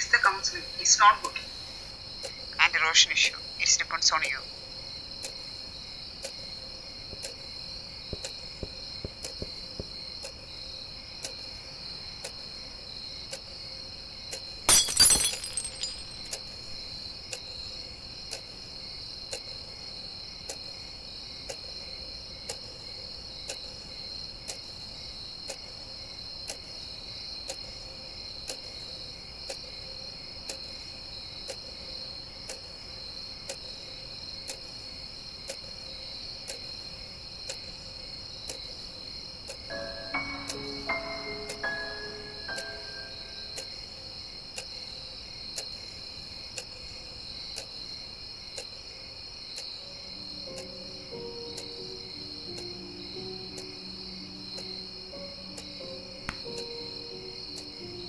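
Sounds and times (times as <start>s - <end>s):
crickets chirping: 0.0s - 58.0s
glass shattering and tinkling: 14.7s - 16.4s
clock ticking: 39.5s - 43.7s, 50.4s - 58.0s.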